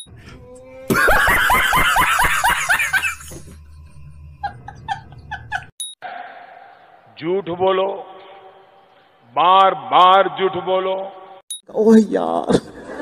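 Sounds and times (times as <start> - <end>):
man laughing: 0.9 - 3.7, 4.4 - 5.7.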